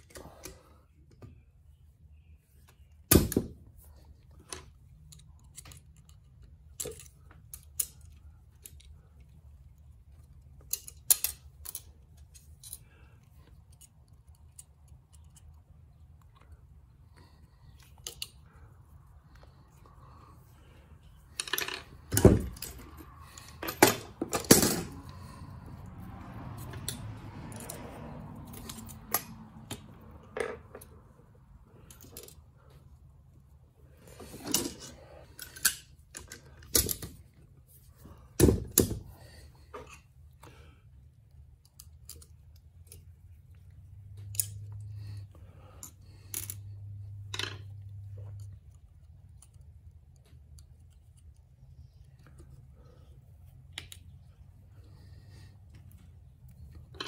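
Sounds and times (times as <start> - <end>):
metal tools clinking and knocking: 21.2 - 25.4.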